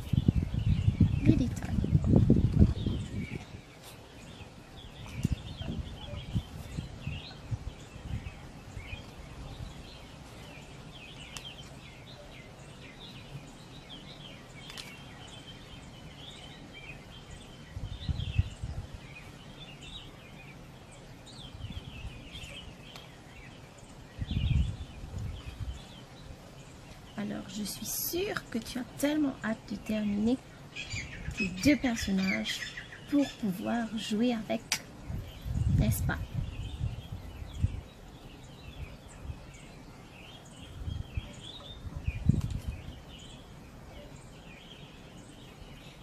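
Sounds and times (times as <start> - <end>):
small birds chirping: 0.0 - 46.0.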